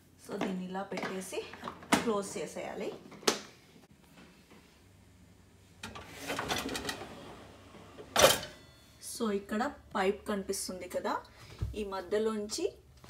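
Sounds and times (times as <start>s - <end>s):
dishwasher racks and pots rattling: 5.8s - 8.7s.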